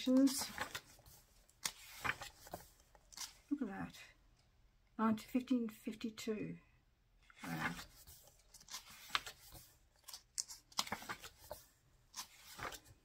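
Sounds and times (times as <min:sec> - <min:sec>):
book pages turning: 0:00.0 - 0:03.5, 0:07.3 - 0:13.0.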